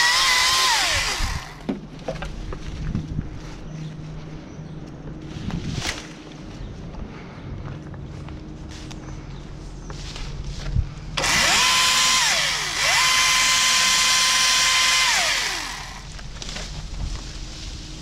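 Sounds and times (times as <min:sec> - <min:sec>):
chainsaw motor whine: 0:00.0 - 0:01.7, 0:11.2 - 0:16.4.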